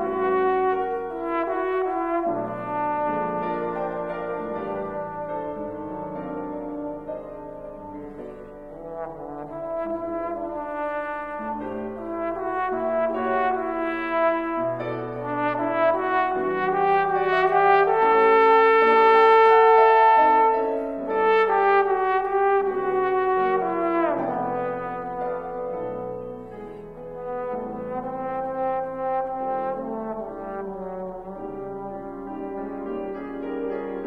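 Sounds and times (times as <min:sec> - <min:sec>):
piano accompaniment: 0:00.0 - 0:34.0
trombone melody: 0:00.0 - 0:34.0.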